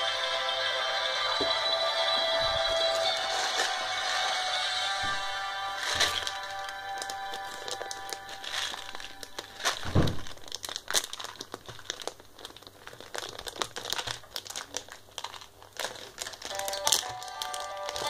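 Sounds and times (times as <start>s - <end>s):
plastic packaging crinkling: 2.4s - 18.0s
dull thump: 9.8s - 10.3s.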